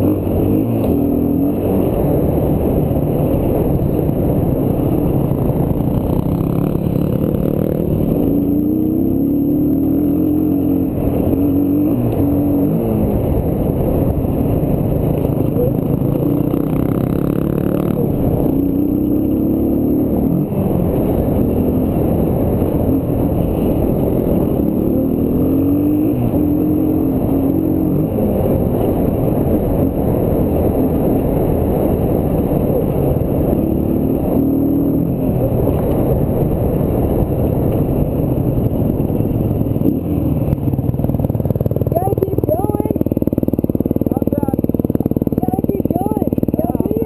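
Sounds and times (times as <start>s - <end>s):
dirt bike engine revving: 0.0s - 37.2s.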